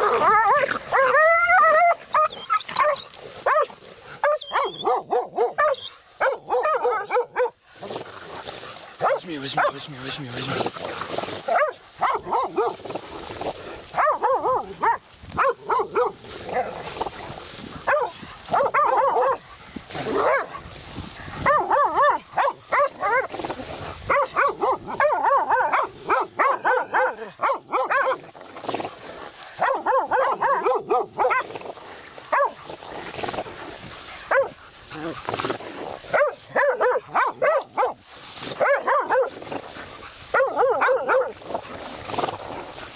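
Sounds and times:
dogs barking: 0:00.0 - 0:42.9.

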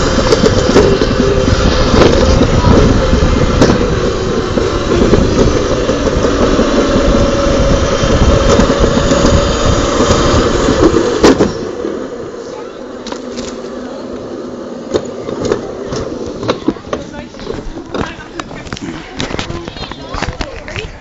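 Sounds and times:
toboggan sled rolling rumble: 0:00.0 - 0:21.0
rattles and clicks: 0:00.1 - 0:07.2.

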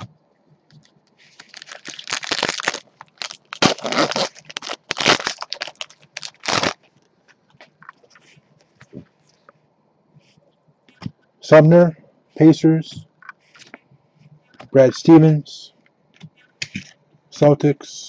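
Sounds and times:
foil wrapper crinkling and tearing: 0:01.3 - 0:06.9.

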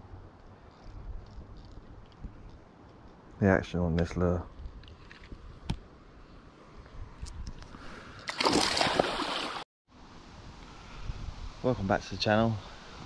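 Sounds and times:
loud splashing in water: 0:08.3 - 0:09.6.

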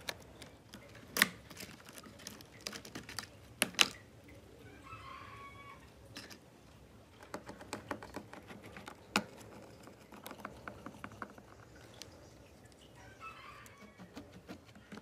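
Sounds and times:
chicken calling: 0:04.5 - 0:05.9, 0:13.0 - 0:15.0.

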